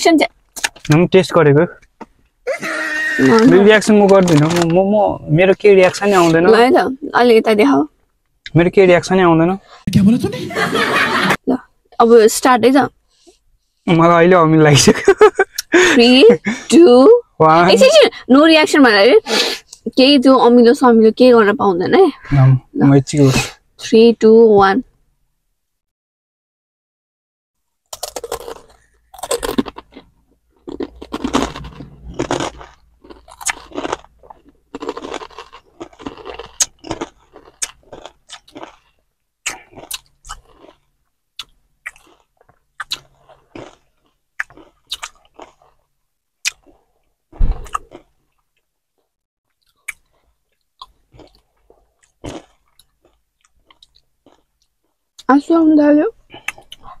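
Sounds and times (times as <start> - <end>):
people crunching chips: 2.6 - 4.8, 27.9 - 45.8, 50.8 - 54.5
low thump: 47.4 - 47.7
mouth clicks: 56.3 - 57.0.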